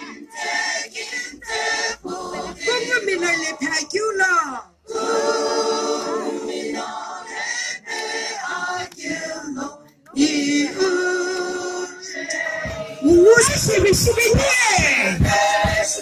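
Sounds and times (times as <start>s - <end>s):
mixed choir singing a hymn: 0.0s - 3.9s, 4.8s - 16.0s.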